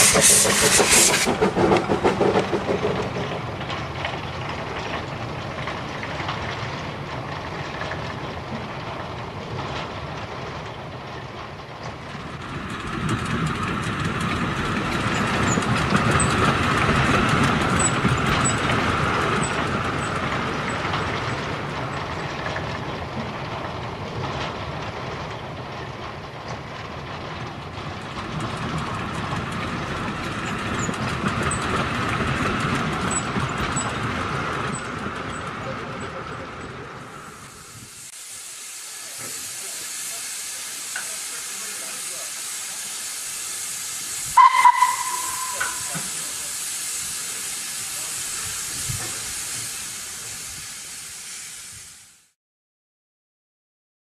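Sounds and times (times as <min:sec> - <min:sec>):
model train rumbling with whine: 0:00.0 - 0:52.3
steady high hiss: 0:37.3 - 0:52.3.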